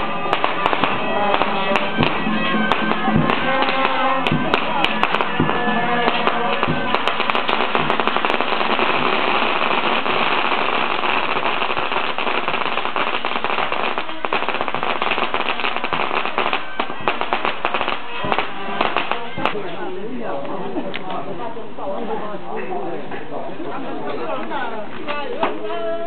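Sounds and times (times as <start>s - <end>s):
firecrackers crackling: 0.0s - 19.8s.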